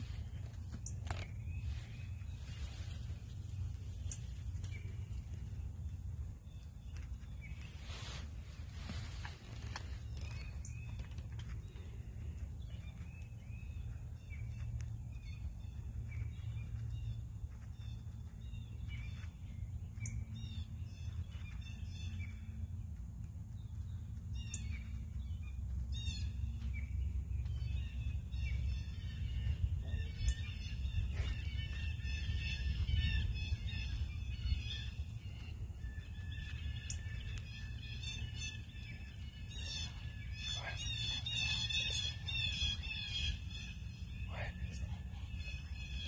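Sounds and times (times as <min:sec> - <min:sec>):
songbirds chirping: 0:00.0 - 0:46.0
steady low rumble: 0:00.0 - 0:46.0.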